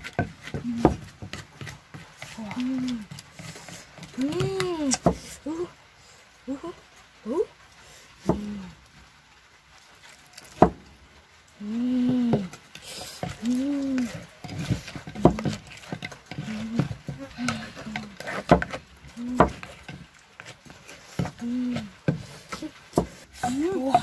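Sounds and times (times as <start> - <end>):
wooden pestle knocking in mortar: 0.0 - 2.9, 13.2 - 24.0.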